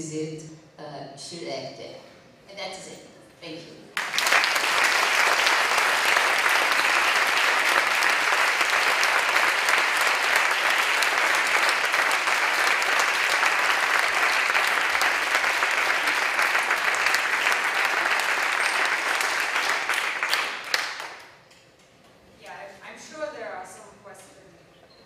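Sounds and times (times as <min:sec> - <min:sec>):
audience applauding: 0:04.0 - 0:21.4.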